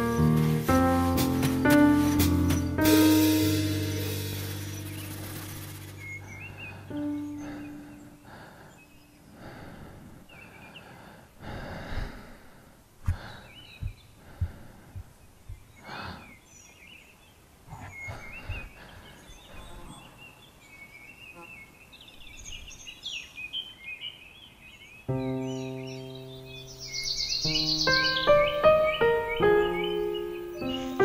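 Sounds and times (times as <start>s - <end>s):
soft low thumps: 0.0s - 5.2s, 13.0s - 15.8s
birds chirping: 0.0s - 12.2s, 13.0s - 31.0s
deep breathing: 4.1s - 15.2s, 15.8s - 16.4s.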